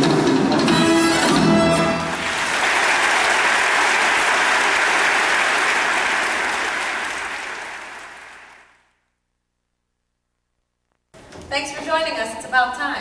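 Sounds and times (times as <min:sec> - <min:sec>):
audience applauding: 0:01.6 - 0:08.9.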